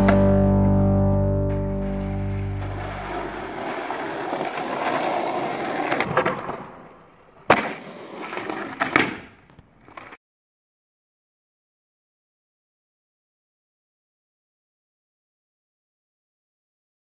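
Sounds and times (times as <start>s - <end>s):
skateboard cracking and clacking: 2.6s - 10.2s
skateboard wheels on asphalt: 2.6s - 10.2s.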